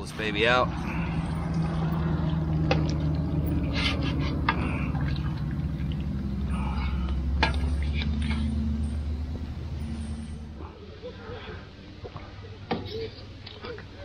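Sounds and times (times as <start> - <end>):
water draining and trickling: 0.0 - 10.6
steady low hum: 0.0 - 12.5.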